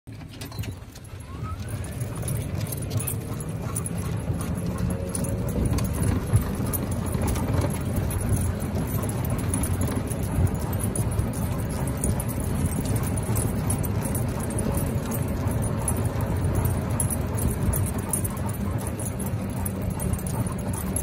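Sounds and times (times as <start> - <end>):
leash clips jingling: 0.2 - 21.0.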